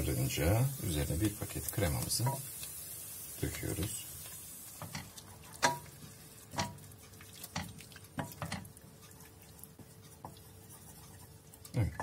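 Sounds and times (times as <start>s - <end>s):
faint sizzle: 0.0s - 12.0s
wooden spoon knocking metal pot: 4.8s - 6.8s, 7.5s - 8.7s.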